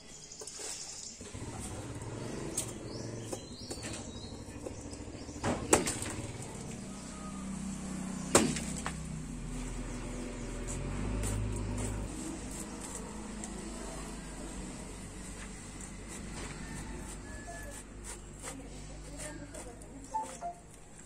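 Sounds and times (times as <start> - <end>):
sharp knocks: 8.3 - 9.0.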